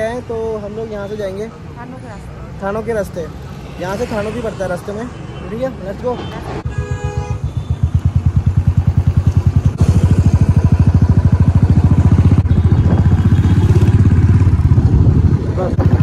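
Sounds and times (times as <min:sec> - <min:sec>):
motorcycle engine running: 0:06.8 - 0:16.0.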